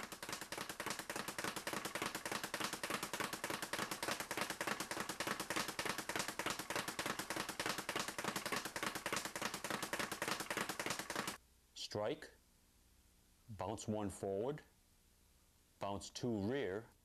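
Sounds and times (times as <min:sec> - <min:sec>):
speed bag rattling knocks: 0:00.0 - 0:11.4.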